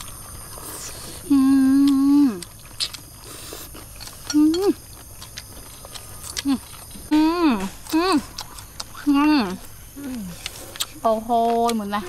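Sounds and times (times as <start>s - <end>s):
woman humming: 1.2s - 2.5s, 4.3s - 4.8s, 6.4s - 8.4s, 9.0s - 10.5s.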